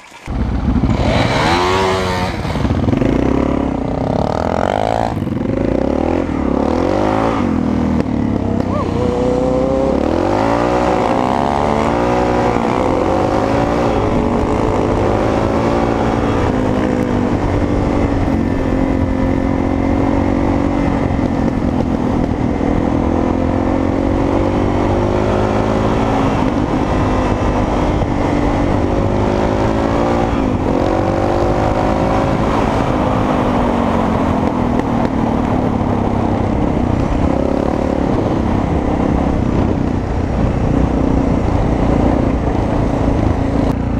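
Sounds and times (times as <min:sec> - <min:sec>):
dirt bike engine revving: 0:00.0 - 0:21.7
wind rushing over microphone: 0:00.0 - 0:43.9.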